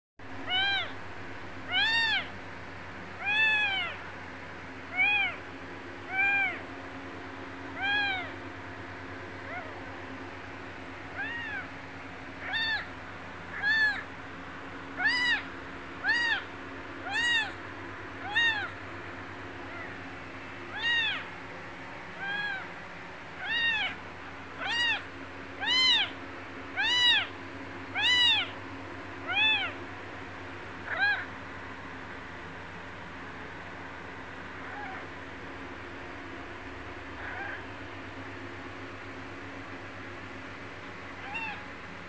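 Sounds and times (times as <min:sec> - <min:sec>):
kitten mewing: 0:00.4 - 0:01.0, 0:01.7 - 0:02.4, 0:03.2 - 0:04.0, 0:04.9 - 0:05.4, 0:06.0 - 0:06.6, 0:07.8 - 0:08.4, 0:09.4 - 0:10.0, 0:11.1 - 0:11.8, 0:12.4 - 0:14.1, 0:14.9 - 0:17.6, 0:18.2 - 0:18.8, 0:19.6 - 0:20.0, 0:20.7 - 0:21.3, 0:22.2 - 0:22.8, 0:23.4 - 0:24.0, 0:24.6 - 0:28.6, 0:29.2 - 0:29.8, 0:30.8 - 0:31.3, 0:34.6 - 0:35.1, 0:37.2 - 0:37.7, 0:41.2 - 0:41.7.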